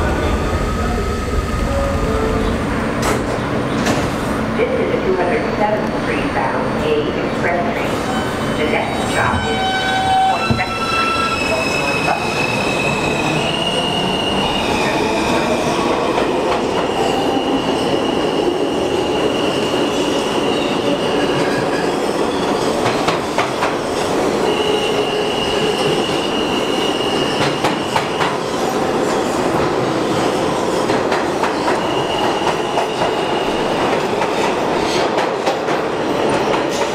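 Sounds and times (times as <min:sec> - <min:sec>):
train wheels rumbling on rail: 0:00.0 - 0:04.6, 0:05.6 - 0:36.9
high wheel squeal: 0:09.2 - 0:14.9.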